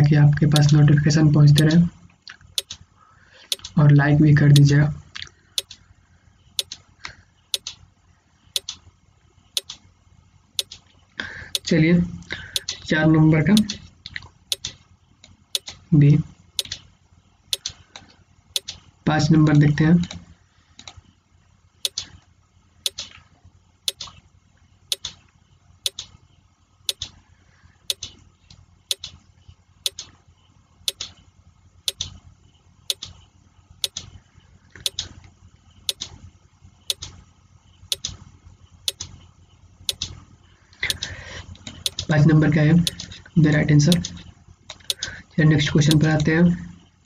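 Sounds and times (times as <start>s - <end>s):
timer ticking like a clock: 1.5s - 1.8s, 3.5s - 3.7s, 8.6s - 8.8s, 11.5s - 11.7s, 12.6s - 12.8s, 14.5s - 14.7s, 23.9s - 24.1s, 30.9s - 31.1s, 31.9s - 32.1s, 33.8s - 34.0s, 34.8s - 35.0s, 37.9s - 38.1s, 39.9s - 40.1s, 40.8s - 41.1s, 41.7s - 42.1s, 42.8s - 43.1s, 43.9s - 45.1s.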